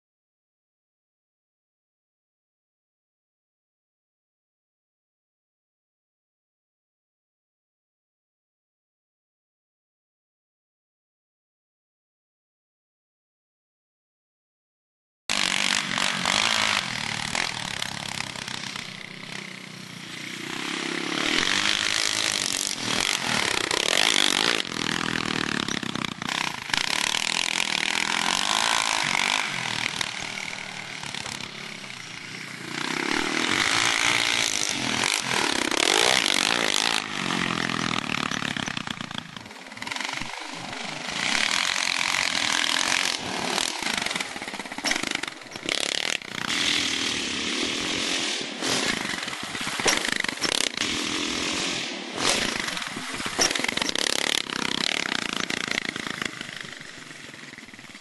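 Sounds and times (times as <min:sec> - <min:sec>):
quad engine revving: 0:15.3 - 0:58.0.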